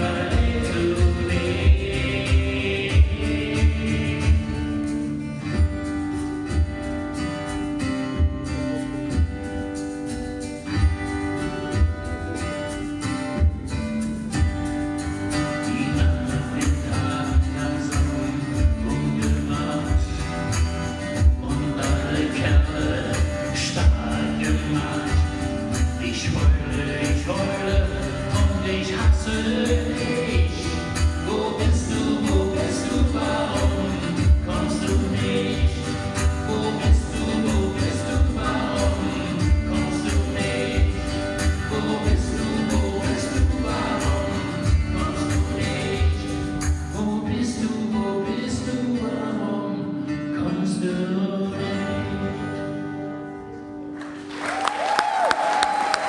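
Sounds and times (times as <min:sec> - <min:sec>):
person singing: 0:00.0 - 0:04.8, 0:21.2 - 0:52.8
acoustic guitars playing: 0:00.0 - 0:56.0.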